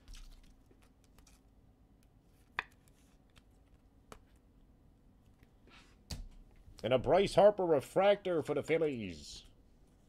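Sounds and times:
trading cards being handled: 0.0s - 4.5s.

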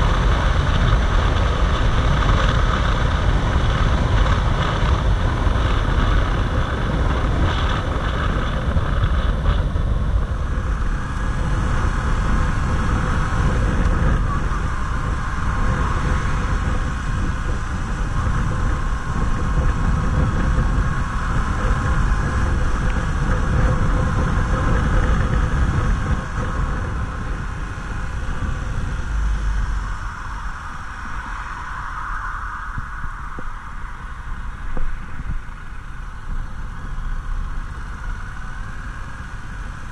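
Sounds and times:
motorcycle engine running: 0.0s - 30.8s
wind buffeting microphone: 0.0s - 39.9s.

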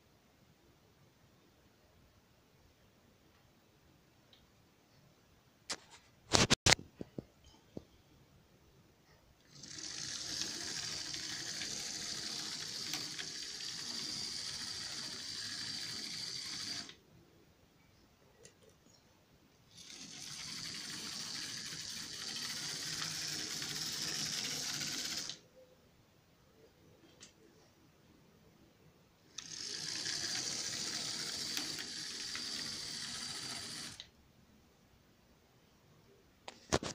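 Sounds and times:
model train motor whirring: 9.4s - 17.0s, 19.7s - 25.4s, 29.3s - 34.1s.

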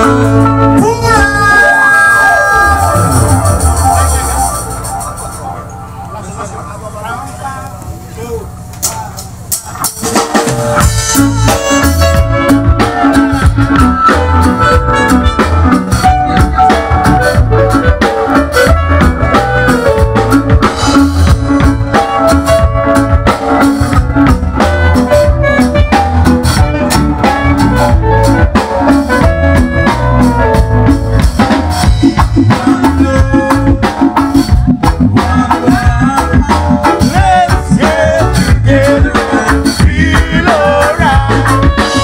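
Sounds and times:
drum kit beat: 0.0s - 7.6s, 8.2s - 42.0s
live band playing: 0.0s - 42.0s
saxophone: 10.8s - 42.0s.

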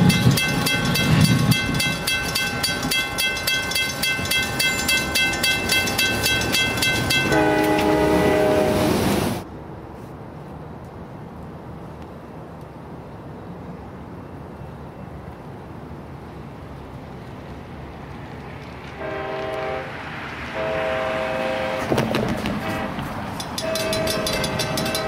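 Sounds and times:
train rumbling: 0.0s - 25.0s
train air horn blasts: 6.8s - 9.4s, 19.0s - 25.0s.

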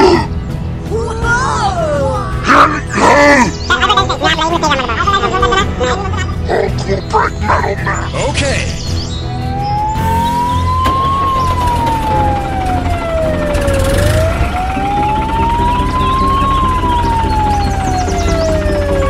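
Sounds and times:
steady low drone: 9.0s - 19.0s
slow wailing siren: 9.3s - 19.0s.

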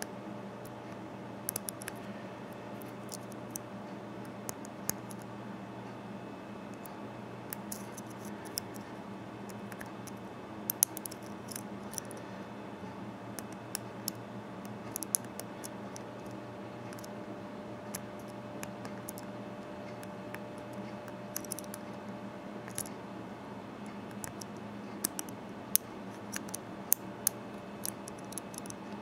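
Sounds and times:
steady low hum: 0.0s - 29.0s
metallic lock picking clicks: 21.3s - 21.8s, 22.7s - 22.9s, 26.2s - 27.0s, 27.8s - 28.8s.

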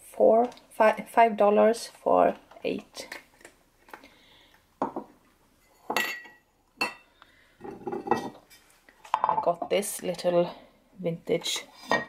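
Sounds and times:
glasses and dishes clinking: 5.6s - 8.4s.

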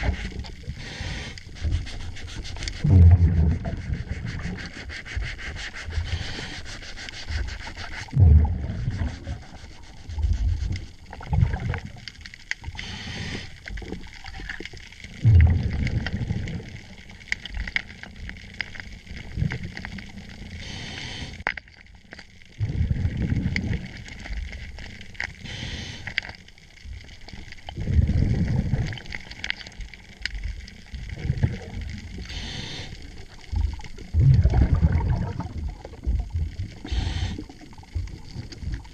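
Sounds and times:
regulator hissing inhale: 0.0s - 2.9s, 4.4s - 8.1s, 12.6s - 13.8s, 20.5s - 21.5s, 25.3s - 26.4s, 32.2s - 33.4s, 36.8s - 37.7s
low bubbling exhale: 0.0s - 4.8s, 8.0s - 10.6s, 11.2s - 12.0s, 15.1s - 16.8s, 22.6s - 24.0s, 27.7s - 29.2s, 31.1s - 38.9s.

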